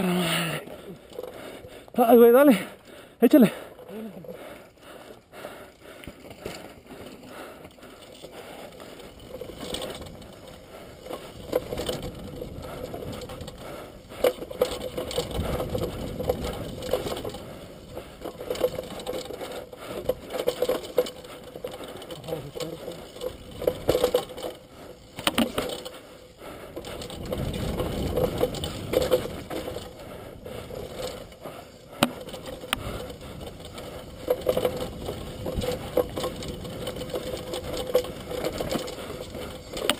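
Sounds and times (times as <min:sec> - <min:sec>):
bike frame and chain rattling: 0:00.0 - 0:39.9
fast mechanical clicking: 0:05.7 - 0:39.9
sharp knocks over bumps: 0:18.2 - 0:25.9, 0:32.0 - 0:39.9.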